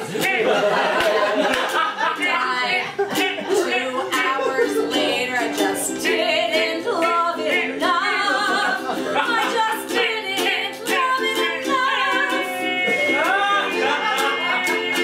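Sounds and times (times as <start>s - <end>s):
strummed ukulele: 0.0s - 15.0s
woman singing: 2.1s - 15.0s.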